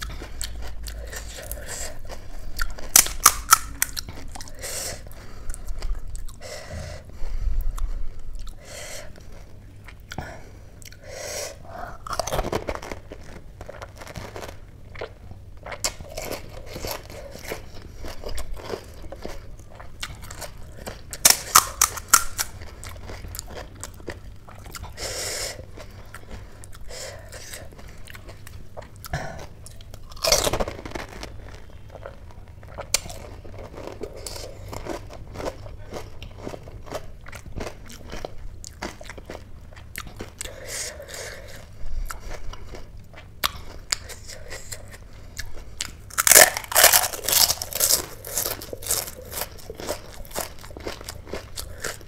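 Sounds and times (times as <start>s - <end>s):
crunching and chewing crisp food: 0.0s - 52.0s
crisp shell cracking: 2.9s - 4.0s, 21.2s - 22.6s.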